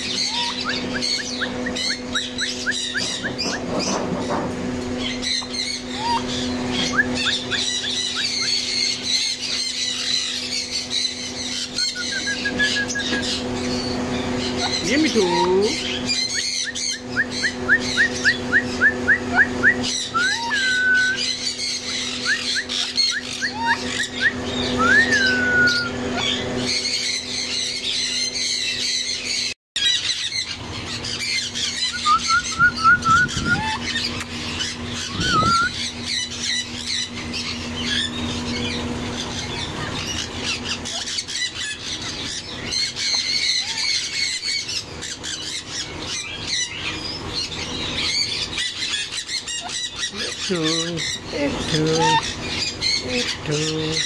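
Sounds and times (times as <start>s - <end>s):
birds chirping and squawking: 0.0s - 54.0s
steady low hum: 0.0s - 54.0s
short rising whistles: 22.2s - 26.0s, 35.2s - 35.8s.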